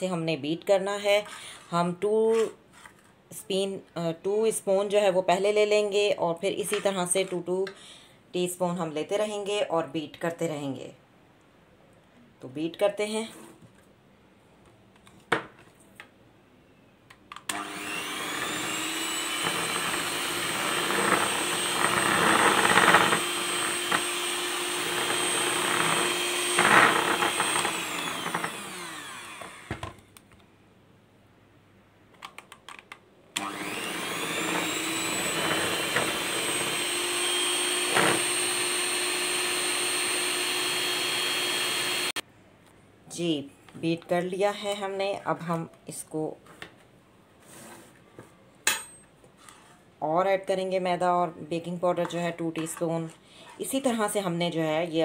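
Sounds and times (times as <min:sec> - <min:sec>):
electric hand mixer motor: 0:17.5 - 0:30.0, 0:33.4 - 0:42.2.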